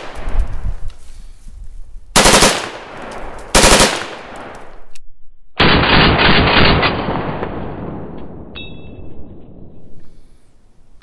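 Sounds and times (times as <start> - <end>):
automatic rifle bursts: 2.2 - 2.8, 3.5 - 4.4.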